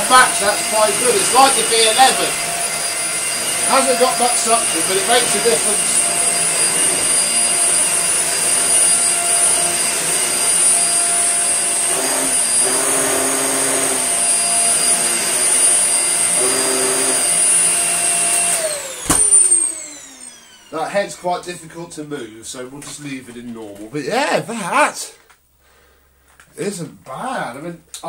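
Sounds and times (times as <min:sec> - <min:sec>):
vacuum cleaner whining: 0:00.0 - 0:24.9.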